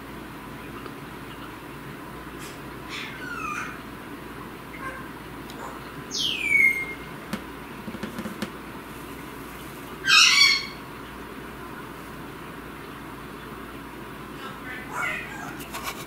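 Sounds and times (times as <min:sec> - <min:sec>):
cockatoo squawking: 0:02.9 - 0:03.8, 0:06.1 - 0:07.1, 0:10.0 - 0:10.8, 0:14.6 - 0:15.7.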